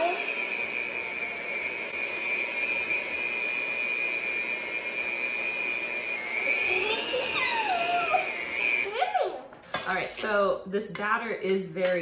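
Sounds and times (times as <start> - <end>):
electric hand mixer whining: 0.0 - 10.4.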